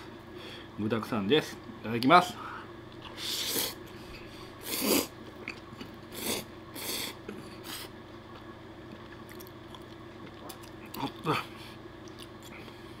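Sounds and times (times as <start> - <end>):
person slurping spaghetti: 4.6 - 5.1.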